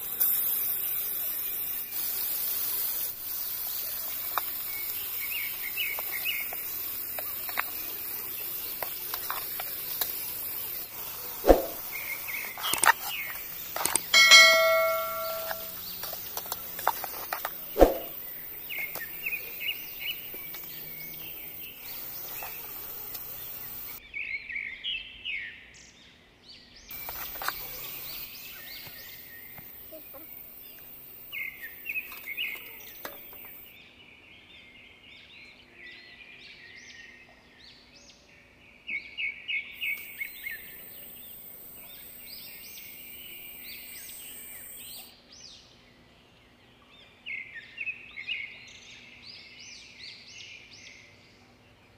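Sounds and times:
high chirping calls: 0.0s - 16.4s
spatula striking metal pot: 14.2s - 15.8s.

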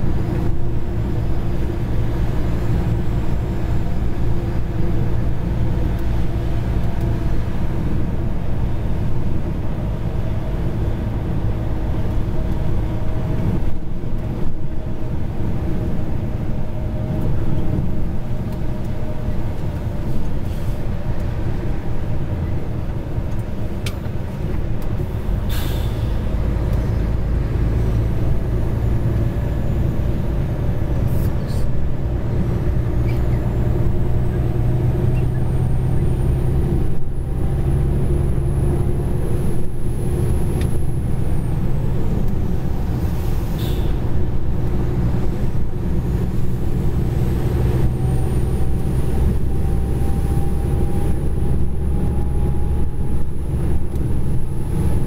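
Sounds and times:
truck engine and road noise: 0.0s - 55.0s
short air hiss: 25.5s - 26.2s.

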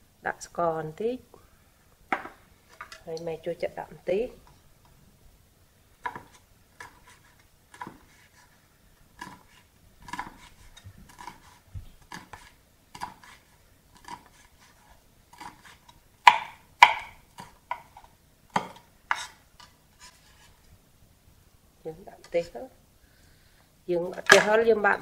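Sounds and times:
cleaver chopping on wooden board: 16.3s - 17.9s.

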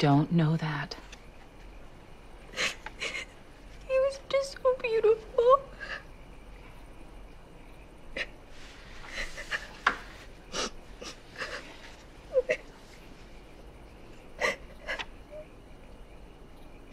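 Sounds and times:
woman sobbing: 2.5s - 3.4s, 10.5s - 12.9s, 14.4s - 15.5s
sniffles: 9.0s - 12.7s
woman whimpering: 10.6s - 12.7s.

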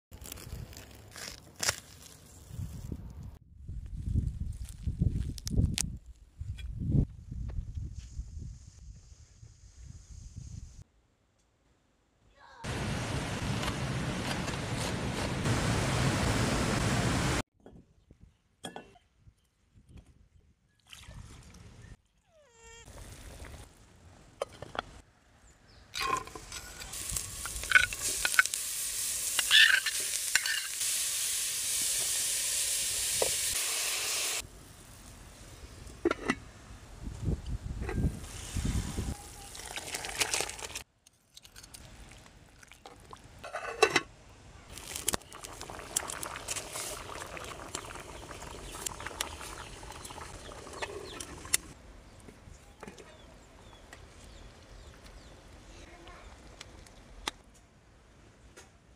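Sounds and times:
metal lid clinking: 43.4s - 44.1s.

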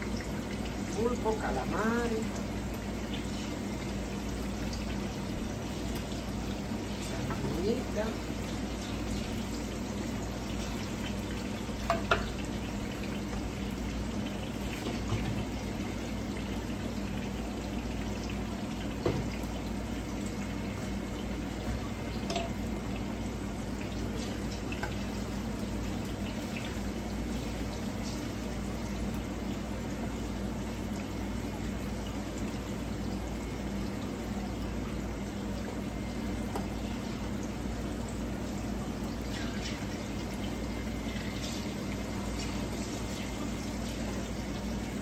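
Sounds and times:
plantain slices sizzling in oil: 0.0s - 19.0s.

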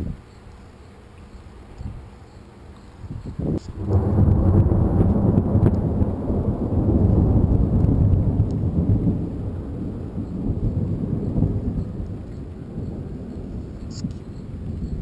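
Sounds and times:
thunder rumbling: 3.2s - 15.0s
thin high whine: 10.0s - 15.0s.

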